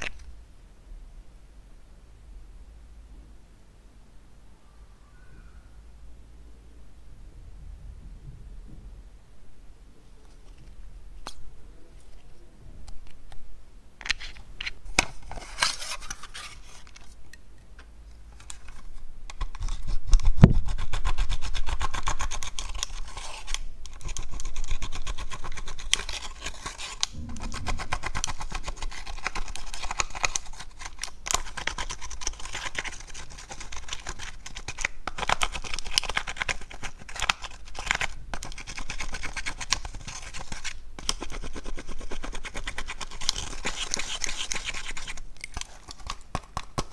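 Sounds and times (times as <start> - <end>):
metal spatula scratching eyeshadow: 20.6 - 46.5.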